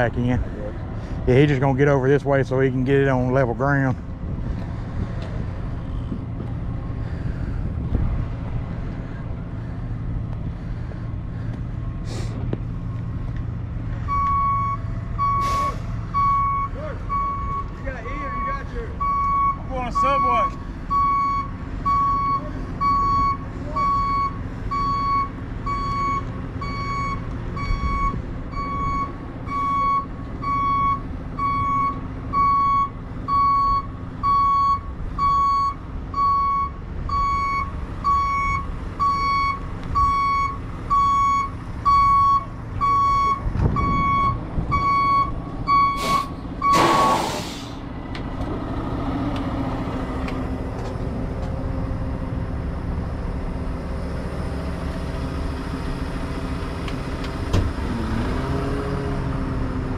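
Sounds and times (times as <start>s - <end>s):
diesel engine running: 0.0s - 59.9s
air brakes hissing: 12.0s - 12.5s, 15.4s - 16.0s, 45.9s - 47.9s
truck back-up alarm beeping: 14.0s - 47.8s.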